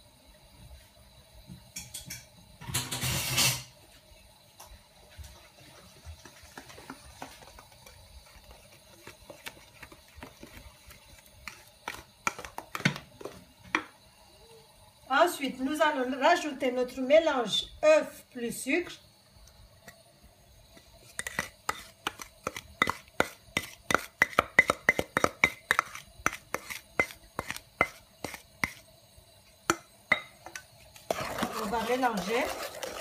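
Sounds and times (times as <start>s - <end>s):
butter sizzling and popping: 4.6s - 14.2s, 18.7s - 33.0s.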